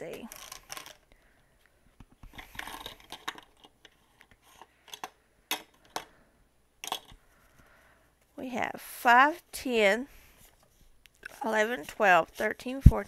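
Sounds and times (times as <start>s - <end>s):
paper bills rustling: 10.4s - 12.8s.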